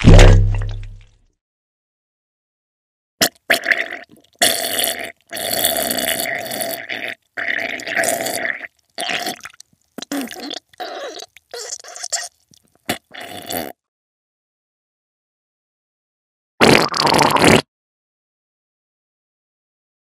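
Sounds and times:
wet fart-like bursts: 0:03.2 - 0:12.3, 0:12.9 - 0:13.8, 0:16.6 - 0:17.7.

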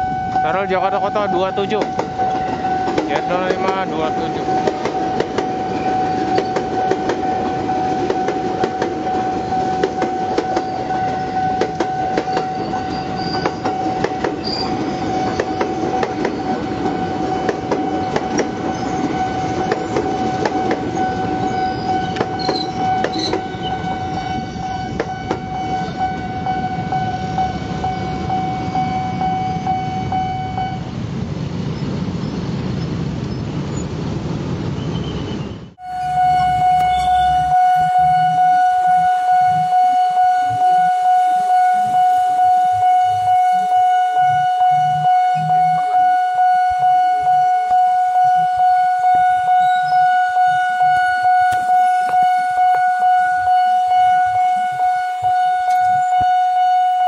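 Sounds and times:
level crossing warning tone: 0:00.0 - 0:31.1, 0:35.8 - 0:57.0
electric train passing: 0:00.0 - 0:35.0, 0:35.7 - 0:57.0
motorbike engines rumbling: 0:00.0 - 0:40.6
wheels clicking over rail joints: 0:01.7 - 0:25.5.

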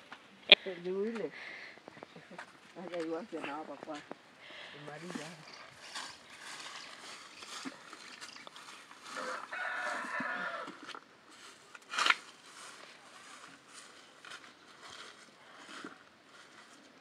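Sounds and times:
rooster crowing: 0:09.0 - 0:11.0.

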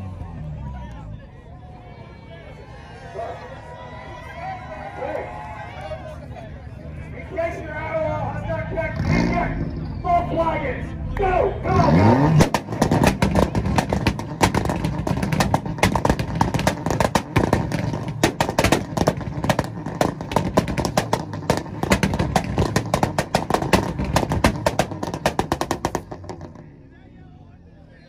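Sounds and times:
car engine on rev limiter: 0:07.4 - 0:28.0
exhaust popping and banging: 0:11.8 - 0:26.7.

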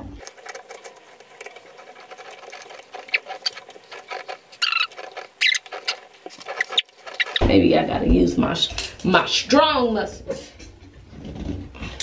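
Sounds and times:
metal clicking and scraping: 0:00.2 - 0:07.4
short squeaks: 0:01.6 - 0:07.4.

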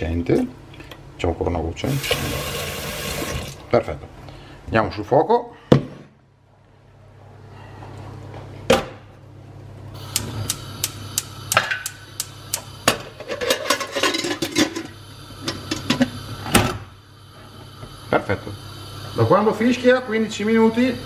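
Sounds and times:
gas hissing: 0:01.8 - 0:03.6, 0:09.9 - 0:21.0
igniter ticking: 0:10.0 - 0:12.7
pressure cooker clanking on grate: 0:12.9 - 0:16.1
metal lid scraping: 0:13.2 - 0:14.9.

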